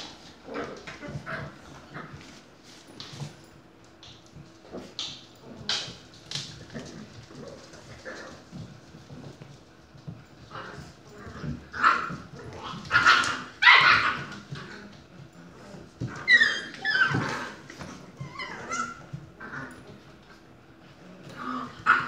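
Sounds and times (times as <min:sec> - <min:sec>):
puppies barking: 0:11.7 - 0:14.6
puppies yipping and whimpering: 0:12.9 - 0:14.5, 0:16.0 - 0:19.2.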